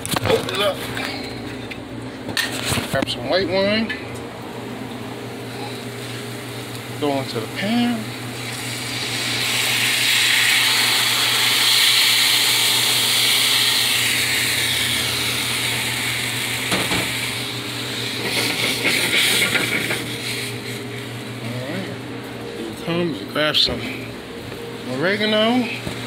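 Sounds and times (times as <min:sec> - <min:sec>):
wine sizzling in hot pan: 0:06.0 - 0:21.1.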